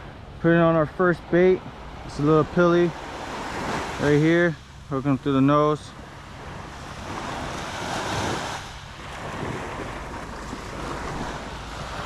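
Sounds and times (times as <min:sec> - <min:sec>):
surf washing up sand: 0:00.4 - 0:12.0
wind on microphone: 0:06.2 - 0:12.0.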